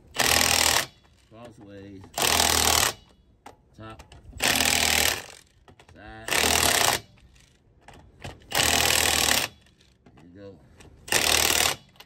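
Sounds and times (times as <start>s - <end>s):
impact wrench hammering: 0.1s - 3.6s, 7.8s - 10.2s, 11.1s - 12.0s.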